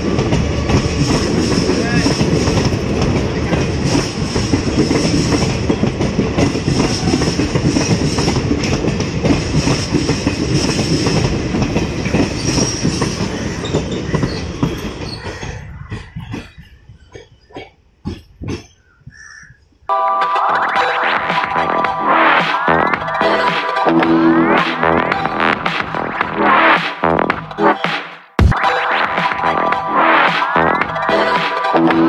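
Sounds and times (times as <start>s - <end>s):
wheels clacking over rail joints: 0.0s - 18.9s
train wheel and track noise: 0.0s - 27.6s, 28.9s - 32.0s
high screech of wheels on rail: 12.2s - 16.1s.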